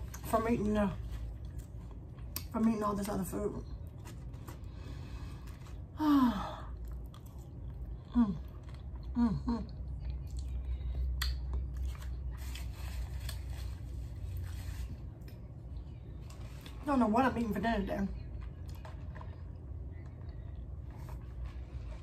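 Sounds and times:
person chewing crunchy chips: 6.7 - 14.6.

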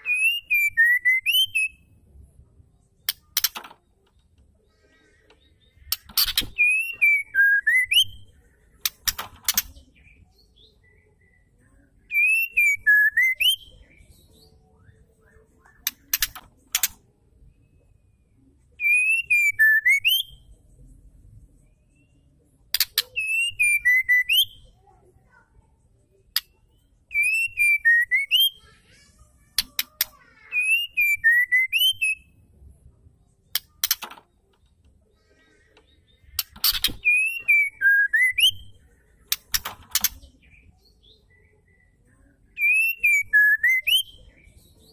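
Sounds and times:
bird whistling calls: 0.0 - 1.8, 6.2 - 8.3, 12.1 - 13.8, 23.1 - 24.6, 27.1 - 28.6, 30.6 - 32.2, 36.4 - 38.8, 42.6 - 44.2
sharp clicks: 3.0 - 4.5, 8.8 - 9.8, 15.8 - 17.0, 33.5 - 34.7, 39.3 - 40.2.

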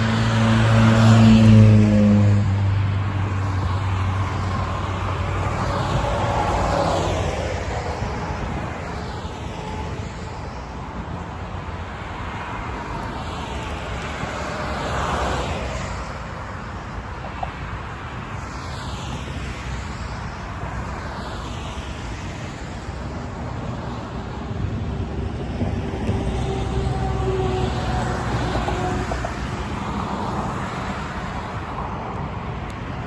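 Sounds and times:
cars passing on highway: 0.0 - 33.0.

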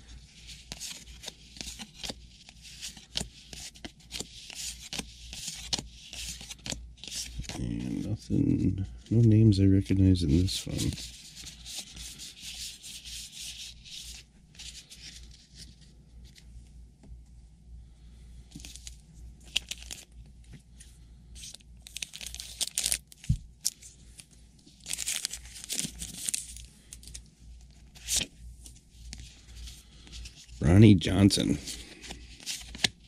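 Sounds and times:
cards rubbing together: 0.4 - 9.4, 10.2 - 15.9, 31.4 - 33.0
wrappers tearing and crinkling: 21.8 - 23.8, 24.8 - 27.2.

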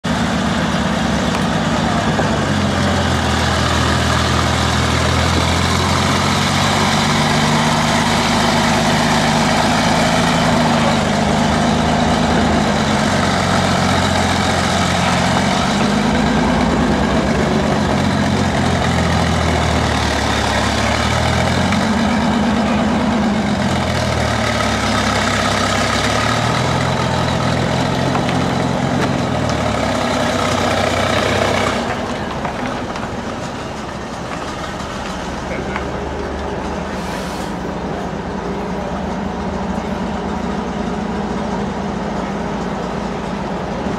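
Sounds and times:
heavy engine idling and revving: 0.0 - 43.9.

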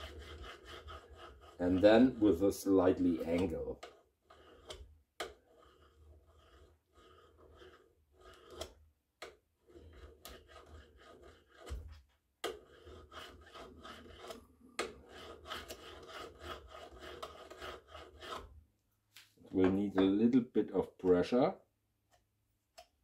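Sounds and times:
steel scraping on steel: 0.0 - 8.8.

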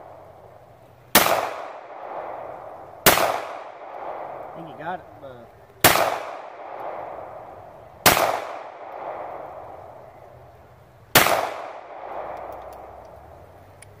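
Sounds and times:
pistol shots with echo: 1.1 - 5.0, 5.8 - 10.0, 11.1 - 13.1.

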